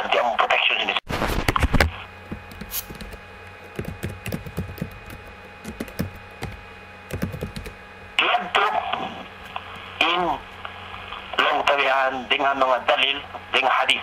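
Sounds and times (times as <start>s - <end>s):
faint steady hum: 0.0s - 14.0s
keyboard keystrokes clicking: 2.5s - 7.8s.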